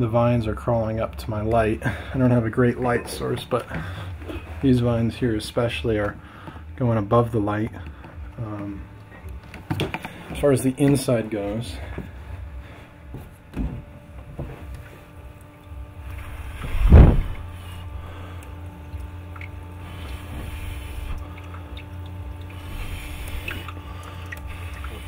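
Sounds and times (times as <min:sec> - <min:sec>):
machine low hum: 0:00.0 - 0:25.0
loud thump: 0:16.6 - 0:17.5
watery hiss: 0:19.8 - 0:21.4, 0:22.5 - 0:25.0.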